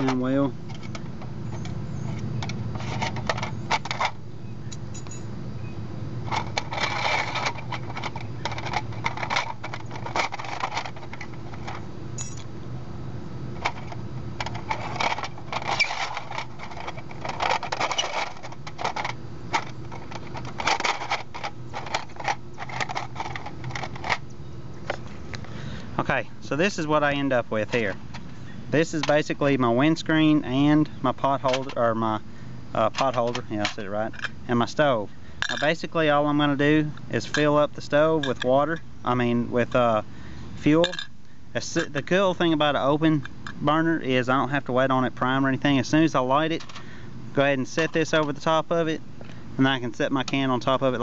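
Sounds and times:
metal stakes clinking and scraping: 0.0 - 5.3, 6.3 - 12.5, 13.6 - 24.2, 31.2 - 31.9, 32.8 - 34.4, 35.4 - 36.0, 37.1 - 38.8, 40.7 - 42.0
steady low hum: 0.0 - 51.0.

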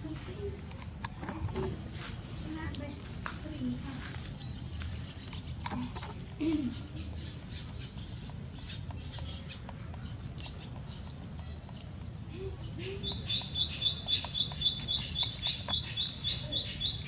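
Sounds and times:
bird chirping rapidly: 12.6 - 17.0.

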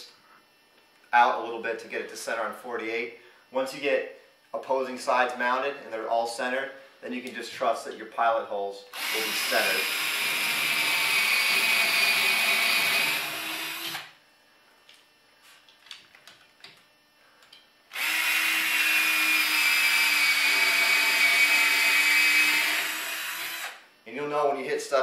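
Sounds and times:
cordless drill drilling wood: 8.9 - 14.2, 17.9 - 23.8.

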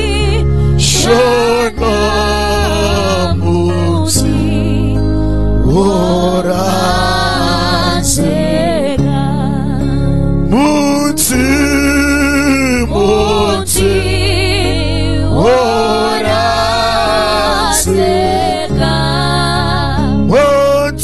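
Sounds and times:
women singing gospel song: 0.0 - 5.0, 5.6 - 9.8, 12.9 - 20.4.

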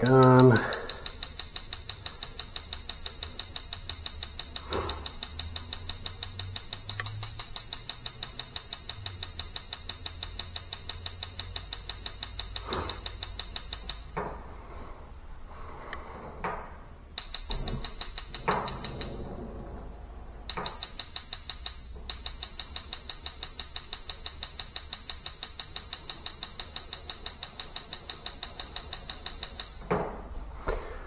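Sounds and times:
gas igniter clicking rapidly: 0.0 - 14.2, 17.0 - 19.5, 20.4 - 29.9.

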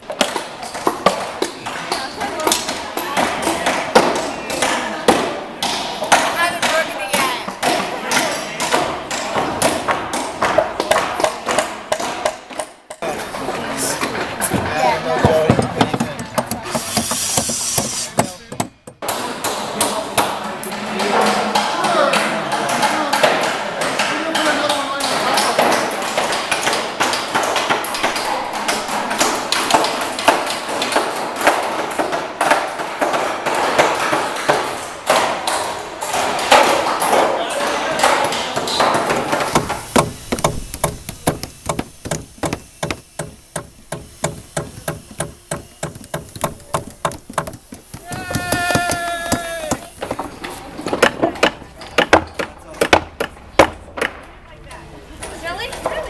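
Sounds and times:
hammers striking nails into wood: 0.1 - 13.0, 15.2 - 20.4, 22.5 - 50.3, 50.9 - 54.2.

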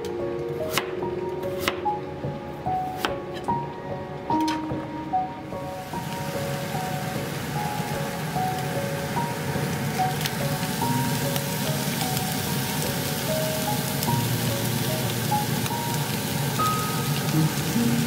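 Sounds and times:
soft background music: 0.0 - 18.0
vegetables sizzling in a frying pan: 5.6 - 18.0.

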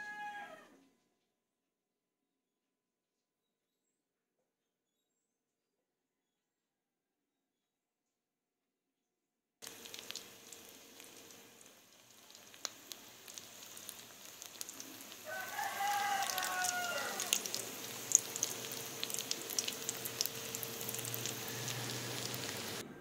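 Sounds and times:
rooster crowing: 0.0 - 0.8, 13.4 - 23.0
food frying in oil: 9.6 - 22.8.

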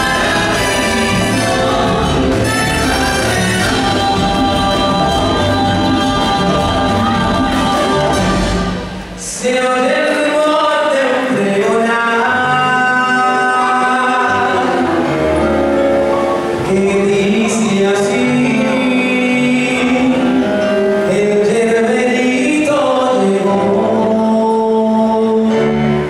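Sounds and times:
man singing into microphone: 0.0 - 15.2, 16.6 - 26.0
other voices singing: 0.0 - 15.3
band accompaniment: 0.0 - 26.0.

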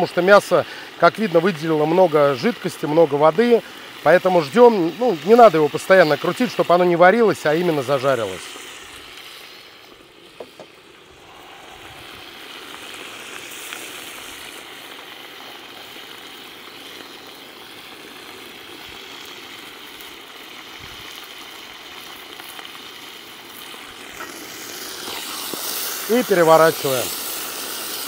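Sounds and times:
meat sizzling in oil: 0.0 - 28.0
meat juices bubbling: 0.1 - 28.0.

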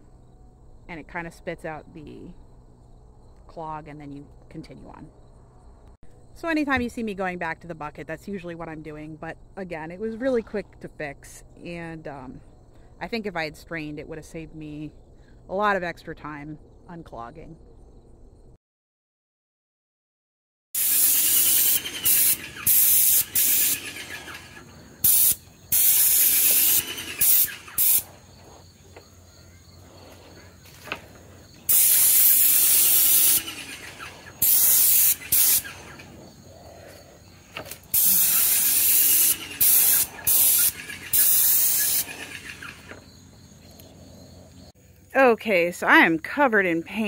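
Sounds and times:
paint sprayer hissing: 20.8 - 28.6, 30.1 - 36.1, 37.5 - 43.0.

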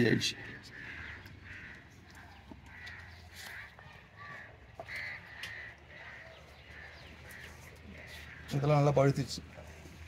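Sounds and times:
crows cawing: 0.0 - 10.0.

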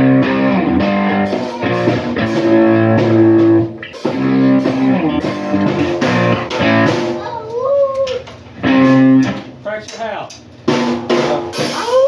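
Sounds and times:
electric guitar chords: 0.0 - 7.2, 8.5 - 9.6
drum kit with cymbal hits: 0.0 - 12.0.

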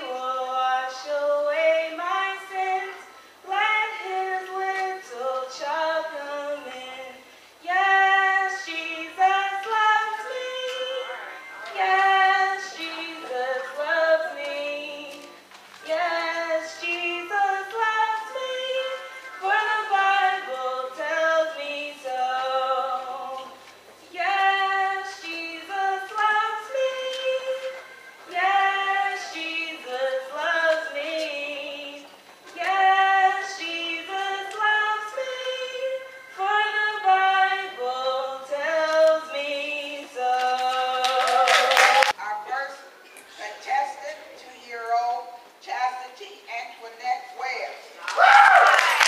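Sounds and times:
woman singing into a microphone: 0.0 - 42.2.

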